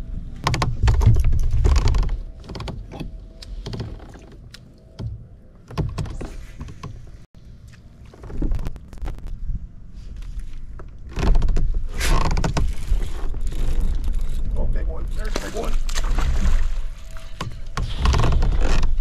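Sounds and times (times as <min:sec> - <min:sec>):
fishing gear rattling on kayak hull: 0:00.4 - 0:04.4, 0:10.8 - 0:19.0.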